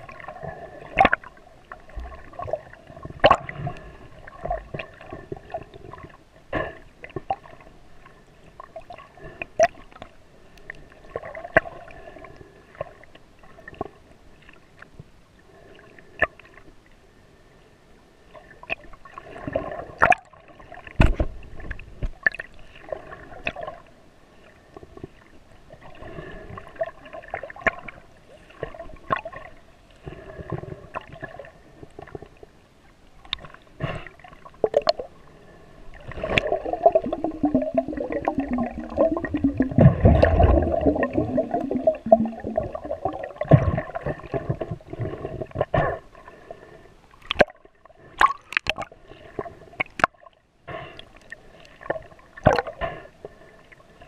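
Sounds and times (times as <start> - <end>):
muffled water sloshing: 34.2 - 45.6.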